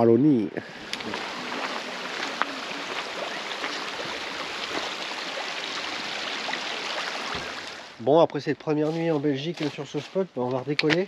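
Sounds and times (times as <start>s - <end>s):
river water flowing: 0.6s - 8.0s.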